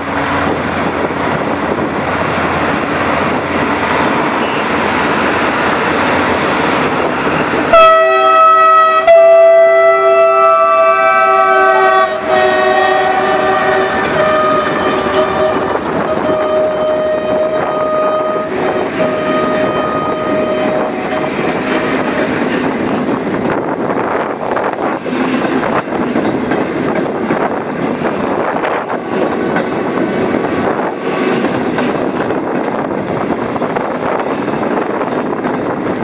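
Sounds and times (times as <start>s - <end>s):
diesel locomotive horn blasts: 7.6s - 23.1s
train wheels clattering over rail joints: 18.4s - 36.0s.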